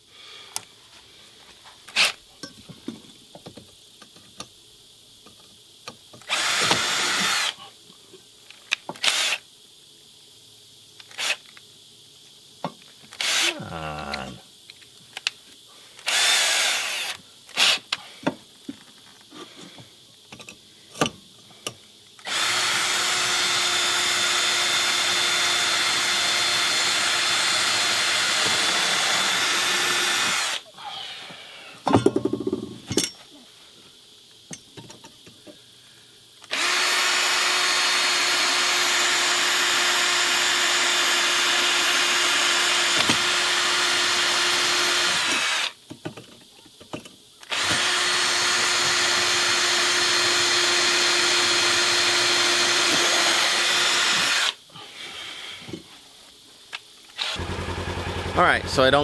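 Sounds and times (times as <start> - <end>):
cordless drill boring through metal: 6.2 - 7.6, 9.0 - 9.4, 11.1 - 11.4, 13.1 - 13.5, 16.0 - 17.8, 22.2 - 30.6, 36.4 - 45.8, 47.4 - 54.6, 57.2 - 57.9.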